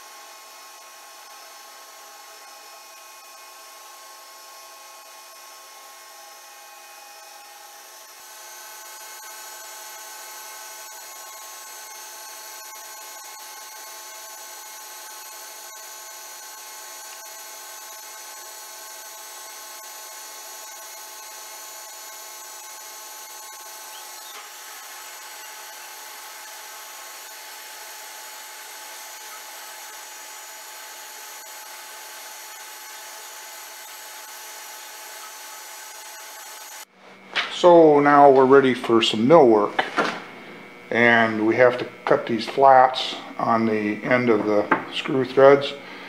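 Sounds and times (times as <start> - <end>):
metal lathe whining: 0.0 - 36.9.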